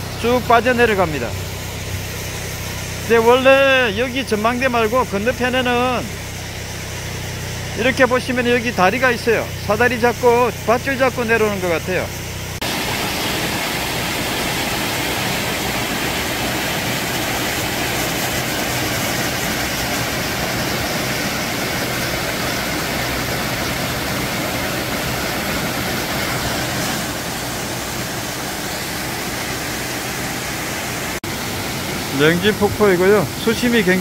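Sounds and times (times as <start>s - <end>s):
waterfall rushing: 12.6s - 34.0s.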